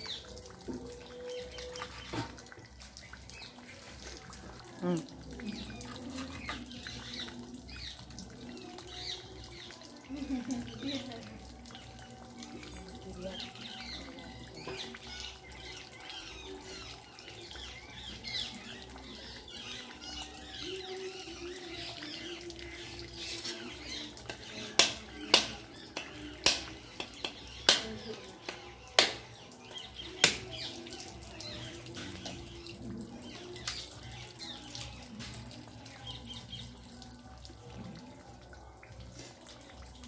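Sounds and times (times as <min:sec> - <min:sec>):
birds chirping and squawking: 0:04.7 - 0:35.3.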